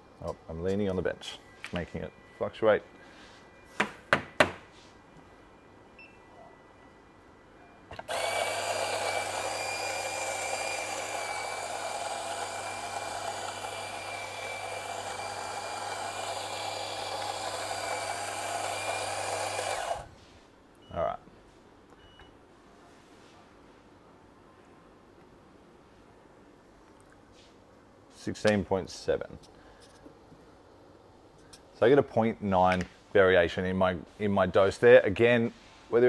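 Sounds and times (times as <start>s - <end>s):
electric coffee grinder grinding: 8.1s - 20.1s.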